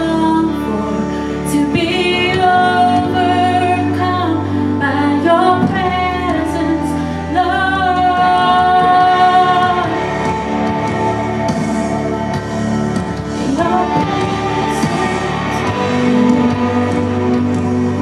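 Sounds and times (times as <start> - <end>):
woman singing: 0.0 - 11.5, 13.2 - 18.0
instrumental accompaniment: 4.8 - 18.0.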